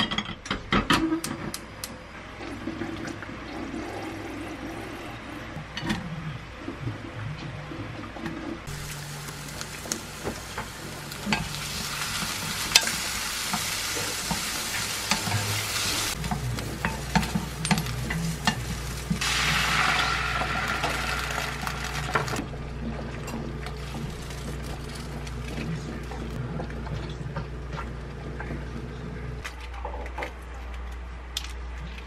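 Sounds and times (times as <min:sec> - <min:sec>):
onions sizzling in oil: 0:08.7 - 0:22.4.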